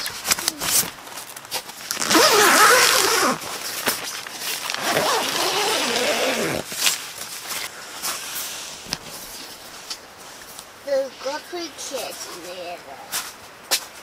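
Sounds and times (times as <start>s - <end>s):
tent zipper being pulled: 1.8s - 7.0s.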